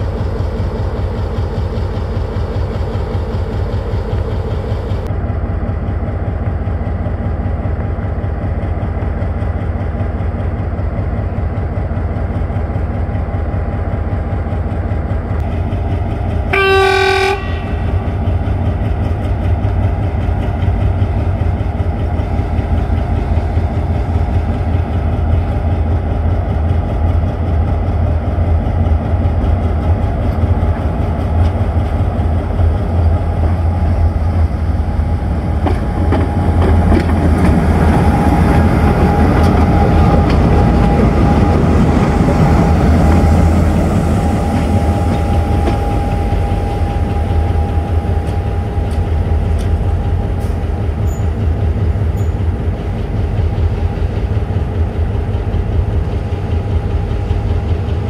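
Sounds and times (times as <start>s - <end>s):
diesel locomotive engine hum: 0.0s - 58.0s
rail and wheel noise: 0.0s - 58.0s.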